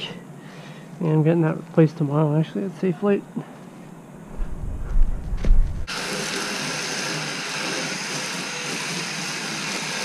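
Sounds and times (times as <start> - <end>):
low rumble: 4.3 - 5.9.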